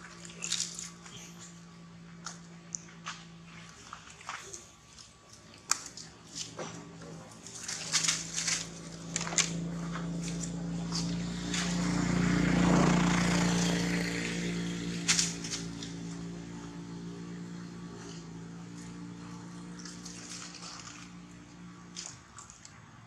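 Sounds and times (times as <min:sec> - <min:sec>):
passing motor drone: 0:06.8 - 0:21.9.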